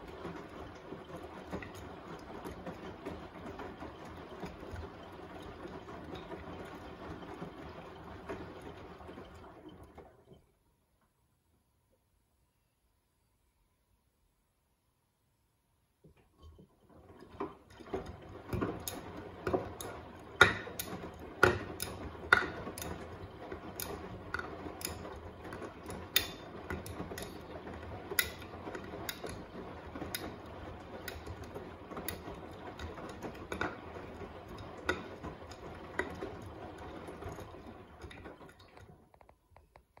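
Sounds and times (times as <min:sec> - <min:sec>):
washing machine drum churning: 0:00.0 - 0:10.6, 0:16.3 - 0:39.2
clicks and knocks in drum: 0:16.1 - 0:40.0.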